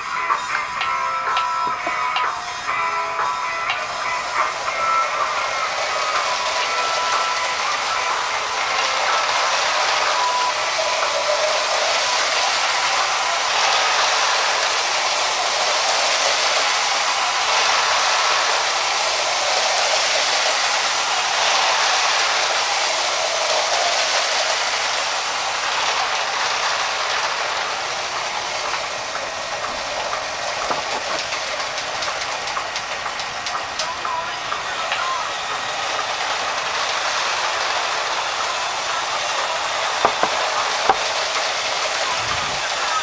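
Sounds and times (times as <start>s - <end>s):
toy train motor whirring and rattling: 0.0s - 43.0s.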